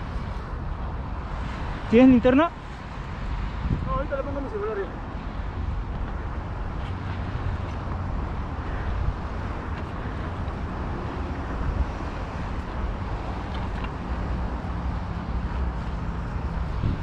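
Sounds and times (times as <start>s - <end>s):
wind buffeting microphone: 0.0s - 17.0s
bicycles clicking and scuffing: 5.6s - 17.0s.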